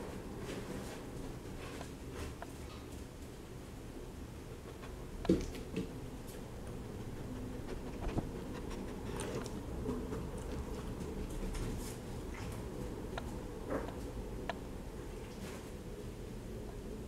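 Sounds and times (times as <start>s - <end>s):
dog sniffing: 6.7s - 11.1s.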